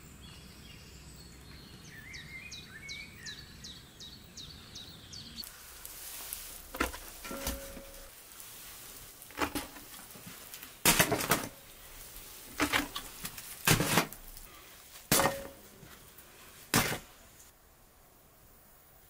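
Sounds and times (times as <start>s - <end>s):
dishes and utensils clinking: 6.7s - 8.1s.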